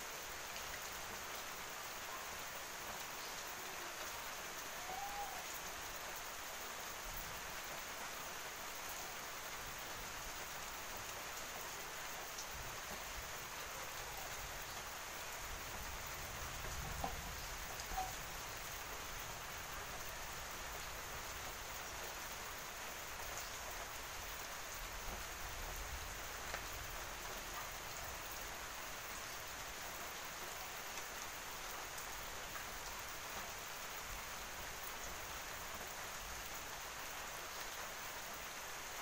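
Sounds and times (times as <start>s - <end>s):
steady hiss: 0.0s - 39.0s
faint soft ticks: 26.4s - 26.7s.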